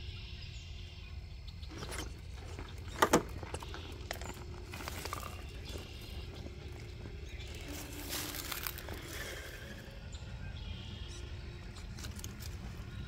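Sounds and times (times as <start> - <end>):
truck scraping on stone: 1.6 - 10.2
rc truck motor and gear whir: 1.6 - 13.0.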